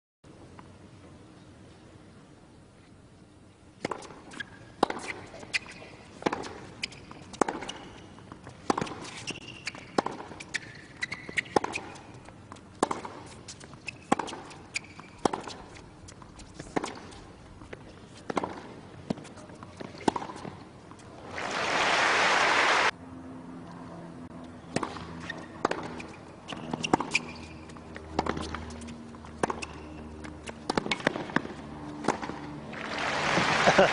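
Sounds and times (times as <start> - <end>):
shoe squeaks: 4.3 - 12.3, 13.3 - 17.3, 25.0 - 30.6
tennis racquet hitting ball: 6.2 - 15.8, 24.7 - 27.6, 30.7 - 32.4.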